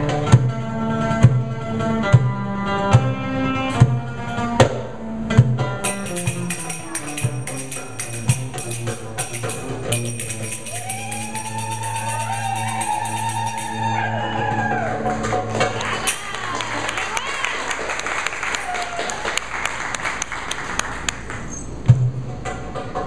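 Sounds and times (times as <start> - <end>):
plucked string notes: 0.0 - 16.5
hand drum strokes: 3.7 - 16.4
held melodic line: 5.8 - 14.4
tambourine jingles: 5.9 - 14.1.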